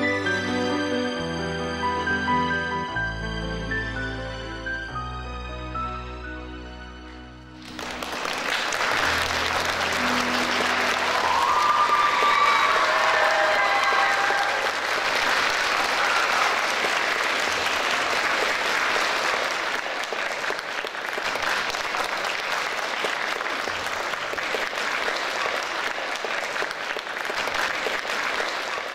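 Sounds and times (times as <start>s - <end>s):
audience applauding: 7.5s - 28.9s
dance music: 9.1s - 13.2s.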